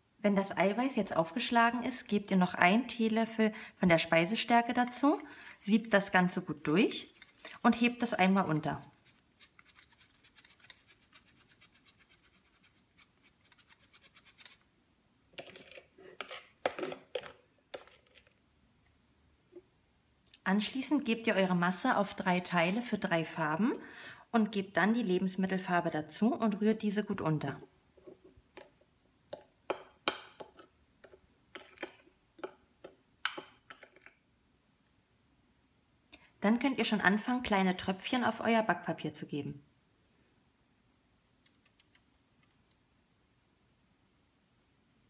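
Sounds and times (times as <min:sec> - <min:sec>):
scratchy ticking of sifting powder: 0:04.7 - 0:14.6.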